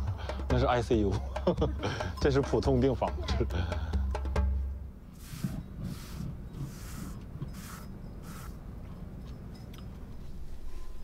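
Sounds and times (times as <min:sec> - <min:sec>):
pencil scratching on paper: 0:05.2 - 0:08.6.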